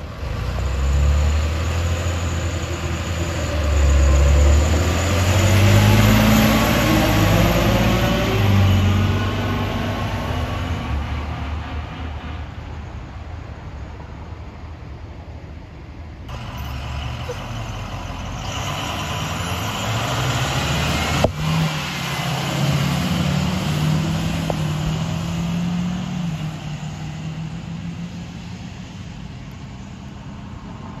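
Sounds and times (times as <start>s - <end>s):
bus engine: 0.0s - 31.0s
bus axle gears whining: 16.3s - 21.7s.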